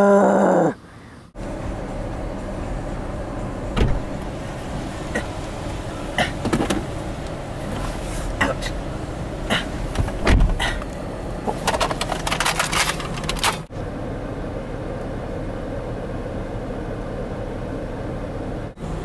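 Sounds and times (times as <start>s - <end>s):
car low rumble: 0.0s - 19.0s
thump: 3.8s - 4.1s, 10.0s - 10.6s
clicks and rustles: 10.8s - 13.7s.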